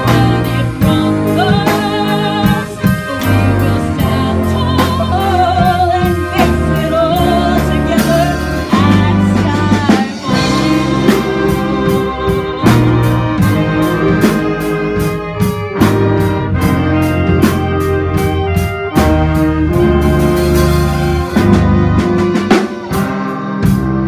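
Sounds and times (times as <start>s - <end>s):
woman singing with vibrato: 0.0s - 17.0s
drum beat: 0.0s - 24.0s
live band playing: 0.0s - 24.0s.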